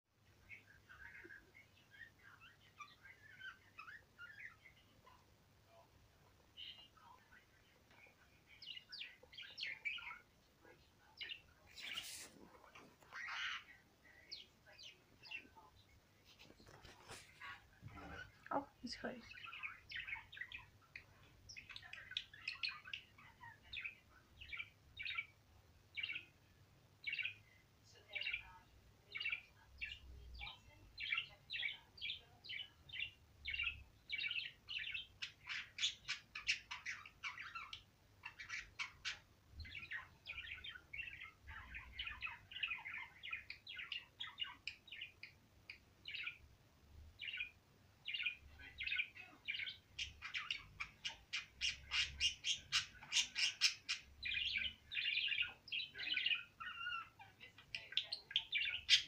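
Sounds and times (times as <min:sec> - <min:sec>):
budgerigar chirping and warbling: 0:13.1 - 0:14.4, 0:19.2 - 0:25.3, 0:29.1 - 0:45.3, 0:47.2 - 0:59.0.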